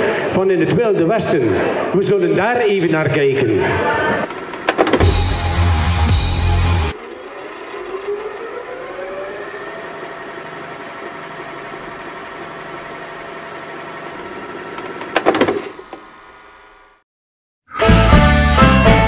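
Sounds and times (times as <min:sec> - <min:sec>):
clicks: 0:04.2 - 0:05.2, 0:14.7 - 0:16.1
tape motor whine: 0:04.2 - 0:17.0
loud low hum: 0:04.9 - 0:14.5.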